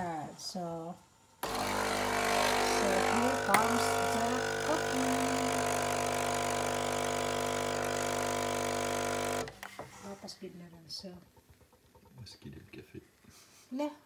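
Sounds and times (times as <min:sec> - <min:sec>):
espresso machine pump humming: 0:01.4 - 0:09.5.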